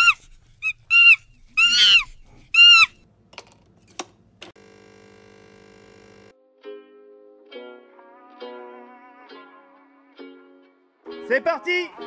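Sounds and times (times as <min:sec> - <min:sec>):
high-pitched squealing animal calls: 0:00.0 - 0:03.0.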